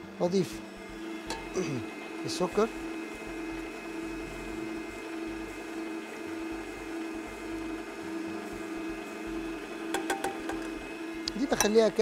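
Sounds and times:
electric mixer whisking: 0:00.3 - 0:12.0.

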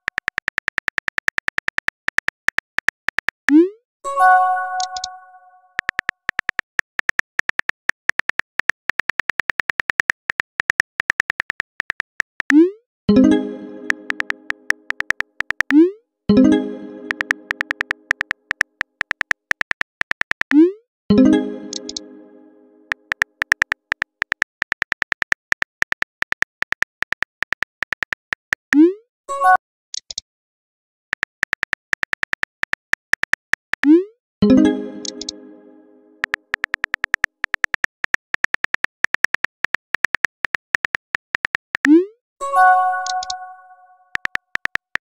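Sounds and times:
phone keyboard typing clicks: 0:00.0 - 0:03.6, 0:04.7 - 0:05.2, 0:05.8 - 0:12.6, 0:13.6 - 0:15.8, 0:17.0 - 0:20.6, 0:21.2 - 0:22.1, 0:22.9 - 0:28.6, 0:31.2 - 0:34.0, 0:34.9 - 0:35.4, 0:36.2 - 0:42.0, 0:42.9 - 0:45.0
brief electronic tone: 0:42.4 - 0:44.1.

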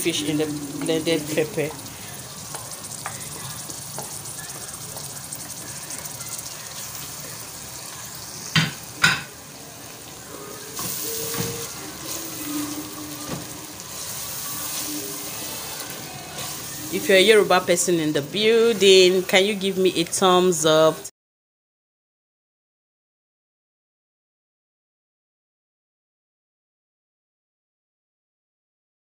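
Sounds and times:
wooden spoon stirring: 0:00.0 - 0:07.9, 0:10.5 - 0:20.2
paste sizzling in hot oil: 0:00.0 - 0:20.7.

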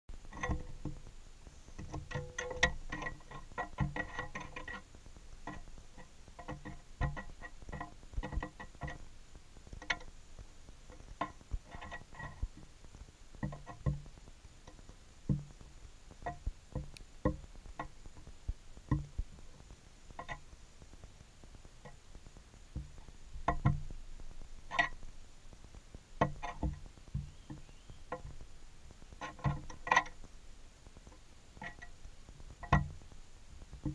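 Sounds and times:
twig tapping and knocking: 0:00.3 - 0:09.1, 0:09.7 - 0:10.2, 0:10.9 - 0:21.0, 0:22.7 - 0:25.1, 0:26.2 - 0:30.4, 0:31.0 - 0:33.9.

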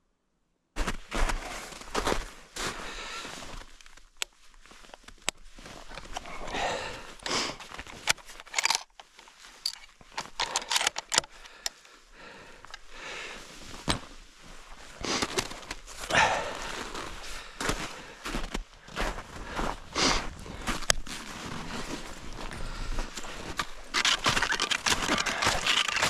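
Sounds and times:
footsteps in snow: 0:00.8 - 0:08.4, 0:12.2 - 0:26.0
person breathing: 0:02.0 - 0:03.8, 0:05.6 - 0:08.7, 0:10.2 - 0:26.0
sharp clicks: 0:09.7 - 0:11.8, 0:23.9 - 0:26.0.

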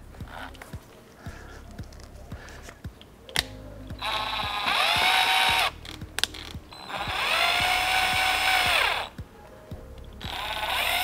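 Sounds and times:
cordless drill driving screws: 0:04.0 - 0:05.8, 0:06.8 - 0:09.1.

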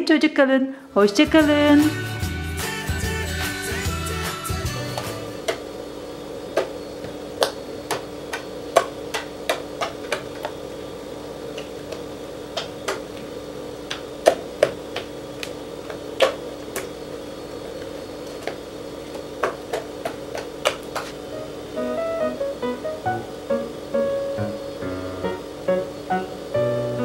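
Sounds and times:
steady hum: 0:03.8 - 0:27.0.

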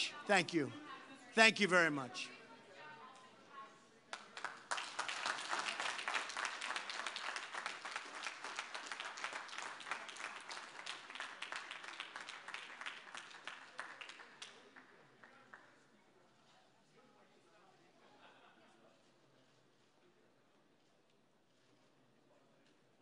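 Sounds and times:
audience applauding: 0:04.2 - 0:15.6.

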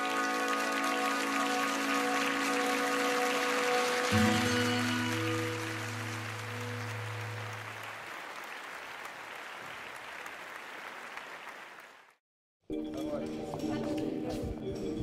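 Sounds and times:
soft music: 0:00.0 - 0:07.7, 0:12.7 - 0:15.0
audience applauding: 0:00.0 - 0:12.2.

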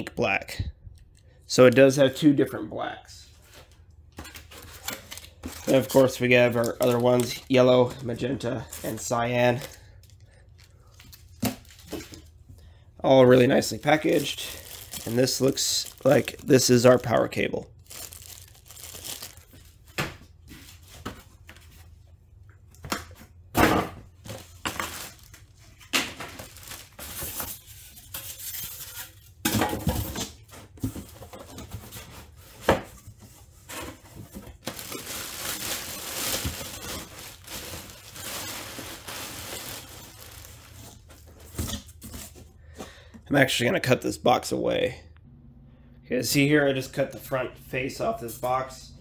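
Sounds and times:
plastic wrapping crinkling: 0:04.4 - 0:12.4, 0:13.2 - 0:19.9, 0:24.3 - 0:29.2, 0:34.0 - 0:42.4
cardboard packaging handled: 0:13.4 - 0:16.8, 0:17.8 - 0:19.9, 0:24.2 - 0:29.3, 0:30.5 - 0:42.5.

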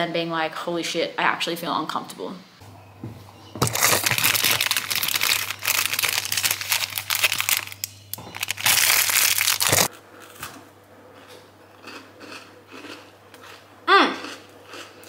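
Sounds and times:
foil wrapper crinkling: 0:03.6 - 0:09.9.

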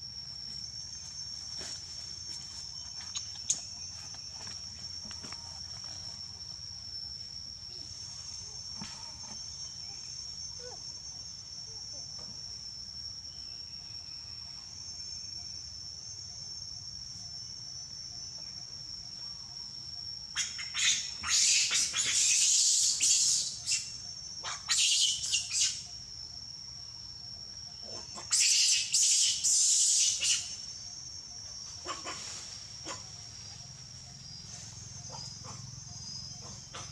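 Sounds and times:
forest birds calling: 0:20.3 - 0:26.0, 0:27.7 - 0:36.9.

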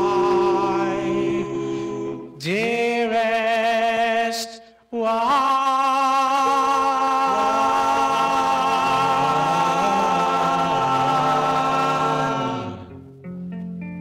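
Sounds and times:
vocal group singing harmony: 0:00.0 - 0:13.1
guitar notes: 0:11.3 - 0:14.0.

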